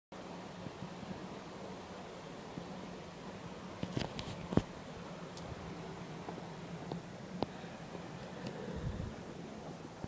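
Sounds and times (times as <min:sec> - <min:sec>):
steady background hum: 0:00.2 - 0:10.0
wind buffeting microphone: 0:05.4 - 0:10.0
low rumble: 0:05.5 - 0:10.0.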